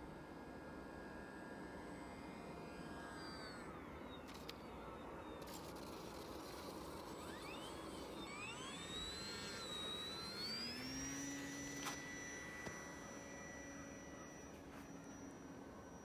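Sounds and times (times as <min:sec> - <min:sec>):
electric motor and propeller whining: 0:00.0 - 0:16.0.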